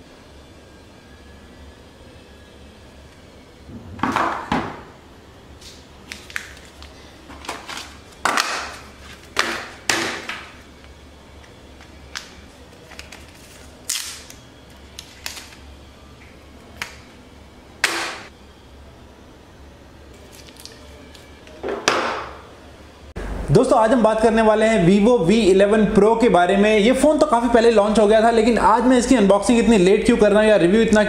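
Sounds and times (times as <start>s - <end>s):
plastic and cardboard rustling: 6.0s - 9.9s, 11.8s - 14.0s.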